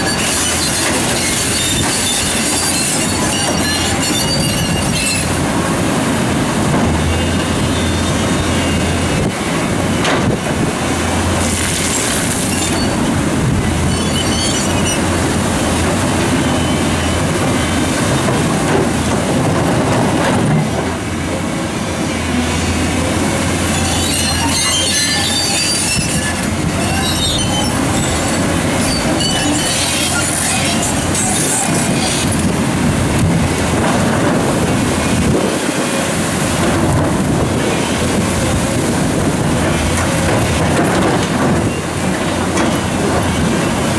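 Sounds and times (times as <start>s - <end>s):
high metallic squeals: 0.0s - 5.4s, 11.8s - 13.1s, 13.8s - 15.2s, 23.6s - 32.5s
water rushing over weir: 0.0s - 43.9s.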